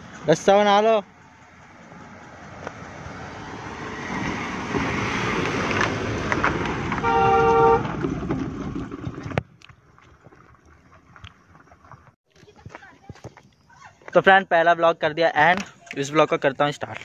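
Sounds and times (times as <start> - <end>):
car engine and tyre noise: 0.0 - 12.2
car horn honk: 7.0 - 8.0.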